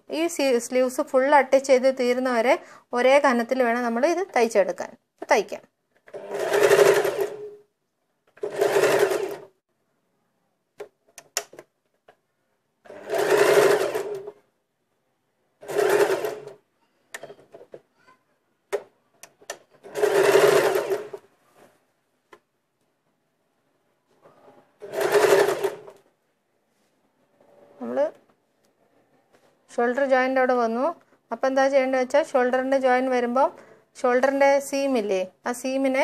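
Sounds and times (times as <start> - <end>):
sewing machine stitching: 6.0 - 7.6, 8.3 - 9.6, 12.8 - 14.4, 15.6 - 16.6, 19.4 - 21.3, 24.8 - 26.0.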